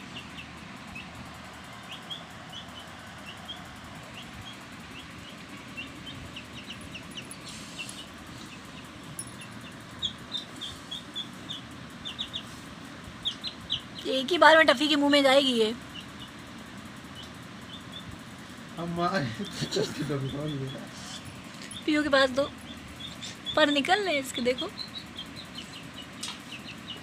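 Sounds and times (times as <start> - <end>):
baby chicks cheeping: 0.0 - 27.0.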